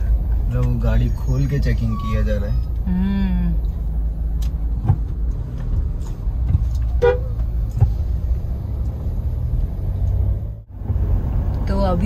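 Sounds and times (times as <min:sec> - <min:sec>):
vehicle engine rumble: 0:00.0 - 0:12.0
car horn toot: 0:06.9 - 0:07.4.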